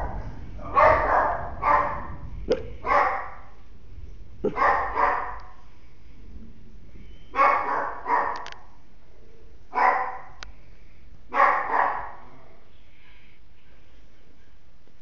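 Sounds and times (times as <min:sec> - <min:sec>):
small dog barking: 0:00.0 - 0:02.1, 0:02.8 - 0:03.4, 0:04.5 - 0:05.4, 0:07.3 - 0:08.5, 0:09.8 - 0:10.3, 0:11.3 - 0:12.3.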